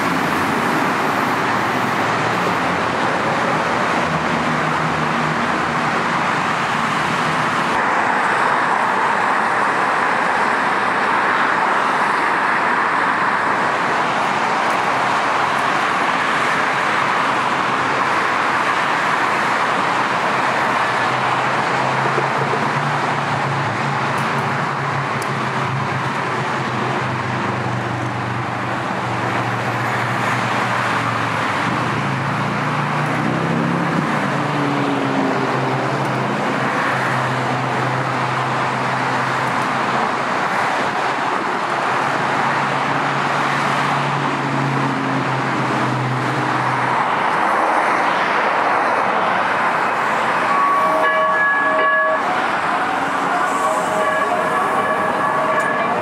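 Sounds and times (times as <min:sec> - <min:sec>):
heavy freeway traffic roar: 0:00.0 - 0:56.0
vehicle horn: 0:50.4 - 0:56.0.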